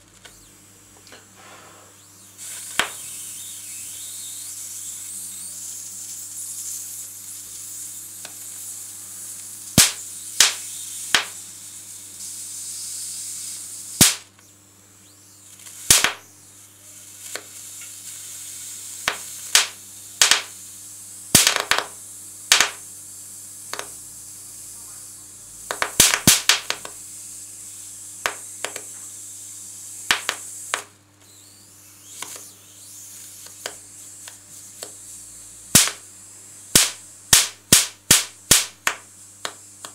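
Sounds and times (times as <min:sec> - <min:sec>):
electric arc hissing: 0:00.0 - 0:39.9
electric arc snaps: 0:02.0 - 0:22.9, 0:23.5 - 0:24.0, 0:25.6 - 0:27.1, 0:28.1 - 0:29.2, 0:30.0 - 0:36.1, 0:36.7 - 0:39.9.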